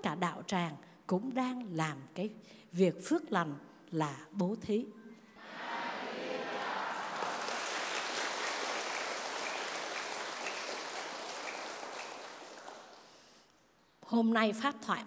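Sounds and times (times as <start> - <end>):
crowd applauding: 5.4 - 13.2.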